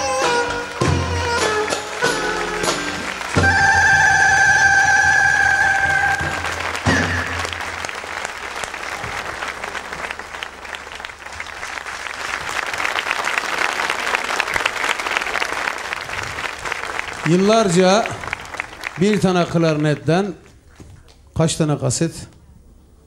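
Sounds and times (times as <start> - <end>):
clarinet held note: 0.0 - 7.8
audience applauding: 0.0 - 20.6
band final hit: 0.6 - 7.9.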